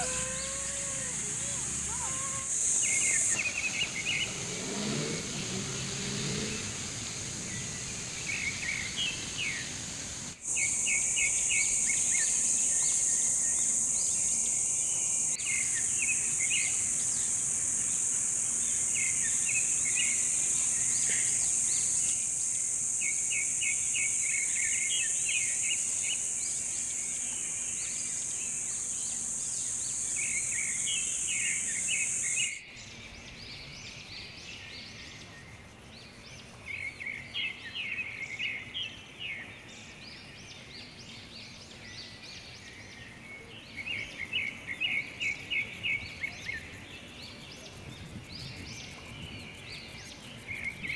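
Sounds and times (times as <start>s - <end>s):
high-pitched insect drone: 0.0s - 32.6s
birds chirping: 0.0s - 38.9s.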